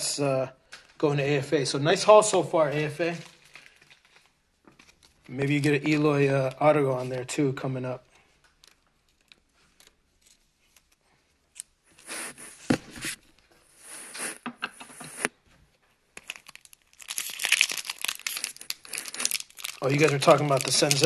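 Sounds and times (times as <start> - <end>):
wrapper crinkling: 3.0 - 5.3, 16.2 - 21.0
card pack wrapper tearing: 16.2 - 21.0.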